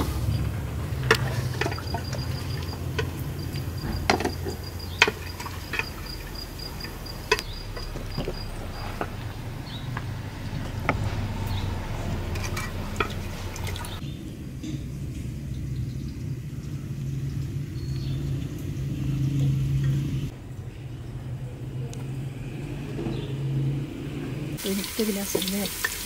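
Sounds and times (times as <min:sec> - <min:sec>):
wooden ladle scraping metal pot: 0:00.0 - 0:14.0
steady low hum: 0:00.0 - 0:24.6.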